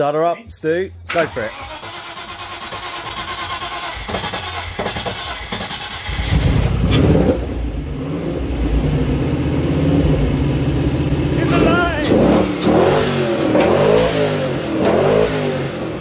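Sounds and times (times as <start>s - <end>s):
engine cranking on starter: 1.1s - 7.3s
engine revving and idling: 1.1s - 16.0s.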